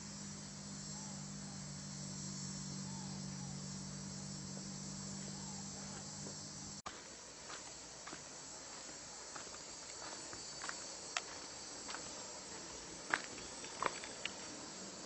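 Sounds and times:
low hum: 0.0s - 6.8s
insect chorus: 0.0s - 15.0s.

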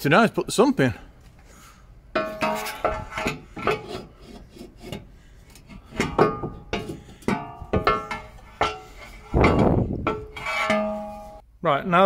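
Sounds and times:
metal sump scraping and knocking: 2.2s - 11.4s.

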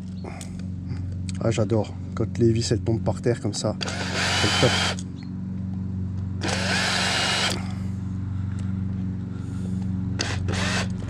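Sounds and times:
steady low hum: 0.0s - 11.0s
cordless screwdriver whirring: 3.8s - 5.1s, 6.4s - 7.8s, 10.2s - 11.0s.

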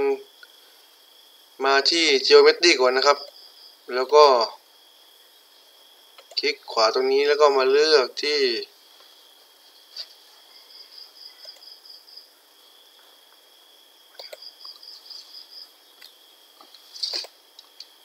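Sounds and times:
crickets trilling: 0.0s - 18.0s
soft clicks: 11.4s - 11.7s, 14.2s - 14.8s.

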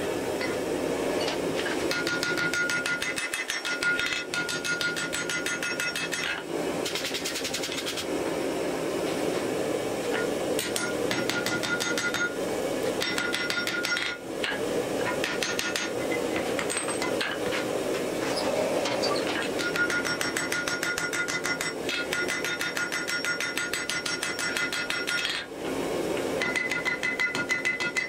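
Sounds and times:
hammer striking steel on anvil: 1.2s - 8.0s, 10.1s - 12.4s, 13.0s - 17.6s, 18.8s - 25.5s, 26.4s - 28.0s.

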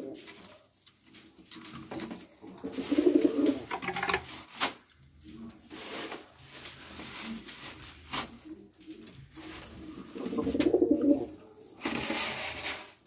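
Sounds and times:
pigeons cooing: 0.0s - 0.4s, 2.4s - 3.7s, 8.8s - 11.5s.

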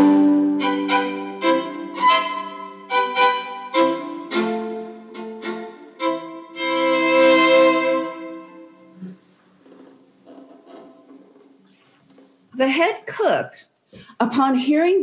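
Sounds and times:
solo violin: 0.0s - 9.0s.

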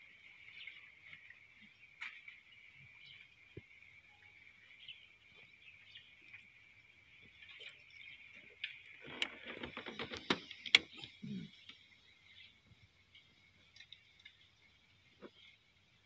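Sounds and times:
crackling clicks: 8.6s - 11.2s.

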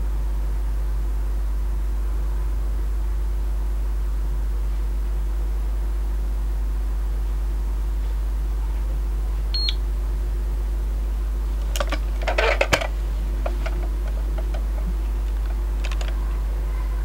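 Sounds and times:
steady low hum: 0.0s - 17.0s
dosimeter beep: 9.5s - 9.8s
handling clicks and rustling: 11.5s - 16.5s.

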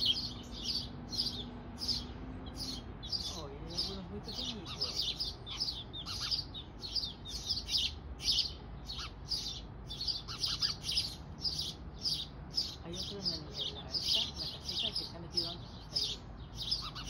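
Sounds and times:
nestling birds chirping: 0.0s - 17.0s.

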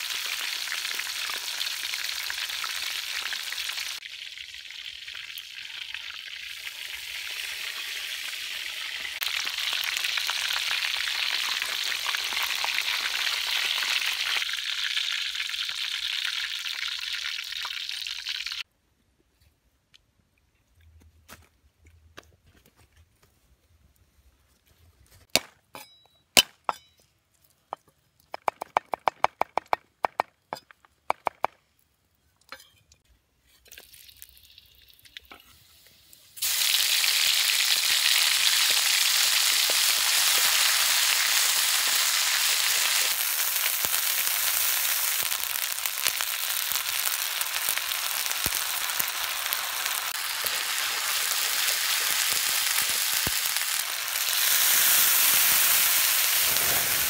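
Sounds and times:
hot oil sizzling in a wok: 0.0s - 18.7s, 34.4s - 57.0s.

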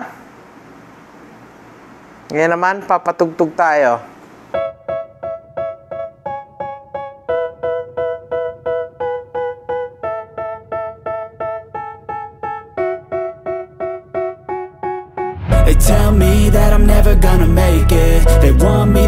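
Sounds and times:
electric piano chords: 4.5s - 19.0s.

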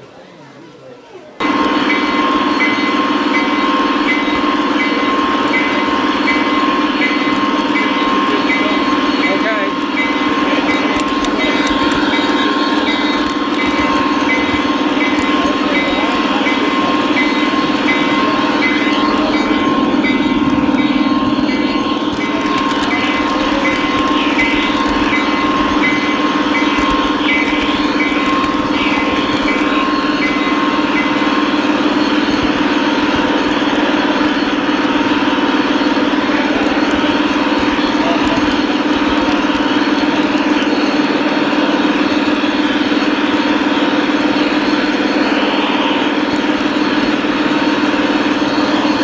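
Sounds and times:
model train motor and wheel whir: 0.8s - 49.0s.

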